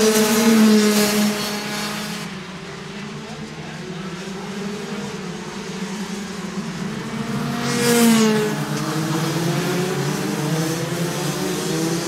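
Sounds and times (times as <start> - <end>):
kart passing close by: 0.0 - 2.3
kart engines racing: 0.0 - 12.0.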